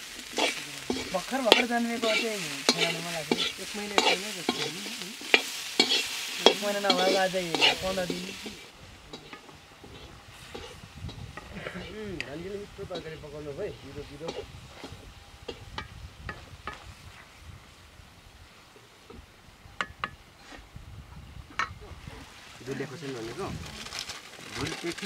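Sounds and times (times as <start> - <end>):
metal ladle scraping a wok: 0.0 - 11.9, 14.2 - 15.8
potatoes frying with a sizzle: 0.0 - 25.0.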